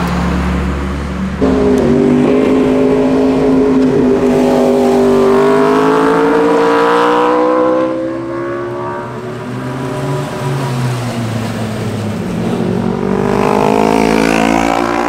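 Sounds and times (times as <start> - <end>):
motorcycle engine accelerating: 1.1 - 9.2, 12.3 - 15.0.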